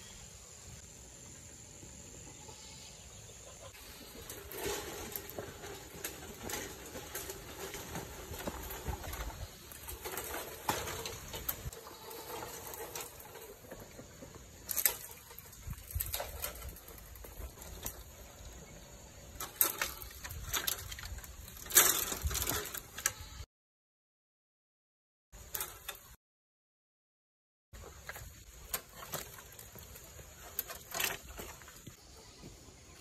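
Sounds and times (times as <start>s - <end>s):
rustling: 3.7s - 18.6s, 19.3s - 23.4s, 27.8s - 32.1s.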